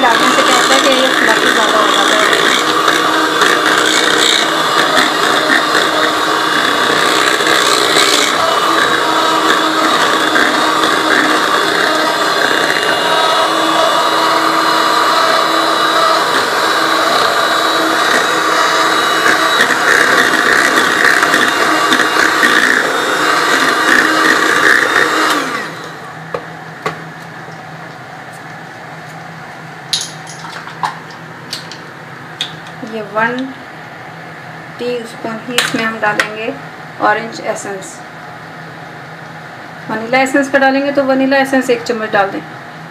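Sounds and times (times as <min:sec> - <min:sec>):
electric mixer beating batter: 0:00.0 - 0:27.0.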